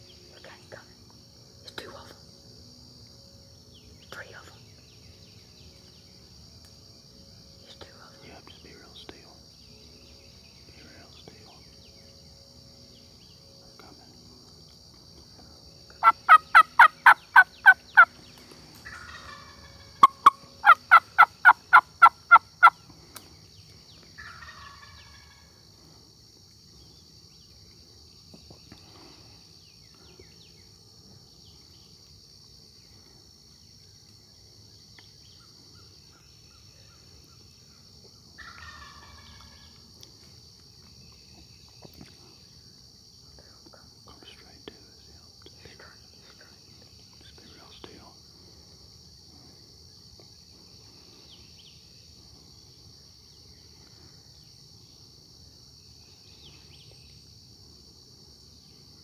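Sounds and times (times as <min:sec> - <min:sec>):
distant turkey gobble: 0:16.0 - 0:18.1, 0:18.8 - 0:22.8, 0:24.2 - 0:25.6, 0:38.4 - 0:39.8
hen turkey yelps: 0:16.0 - 0:18.1, 0:18.9 - 0:22.8.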